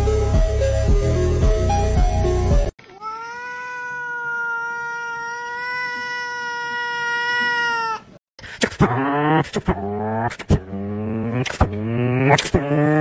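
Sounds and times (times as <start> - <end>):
music: 0.0 - 2.7
cat meowing: 2.8 - 8.1.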